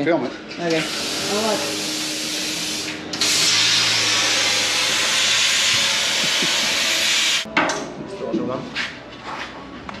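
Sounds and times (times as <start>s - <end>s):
welding arc hissing: 0.7s - 7.5s.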